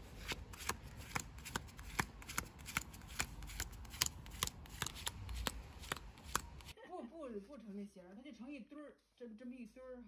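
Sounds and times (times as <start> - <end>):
playing cards snapping: 0.2 - 6.7.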